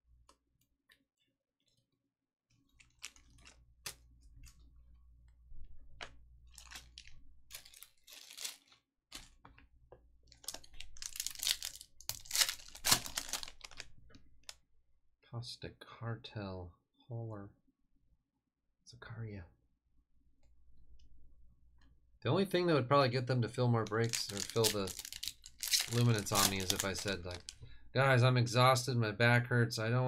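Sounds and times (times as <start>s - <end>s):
wrapper rustling and clicking: 2.5s - 4.7s, 5.9s - 14.6s, 23.8s - 27.7s
foil wrapper crinkling and tearing: 2.6s - 4.5s, 6.5s - 9.4s, 10.3s - 14.0s, 23.8s - 27.6s.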